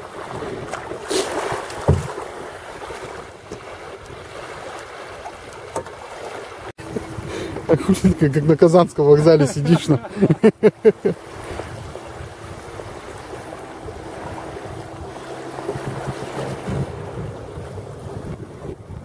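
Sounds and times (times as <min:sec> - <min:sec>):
small waves washing on shore: 0:00.0 - 0:19.0
wind blowing over microphone: 0:06.8 - 0:19.0.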